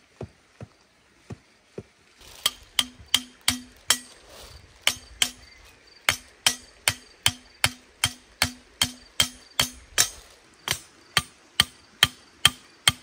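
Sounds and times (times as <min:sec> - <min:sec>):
hammer driving tent pegs: 0:02.2 - 0:04.2, 0:04.8 - 0:13.0.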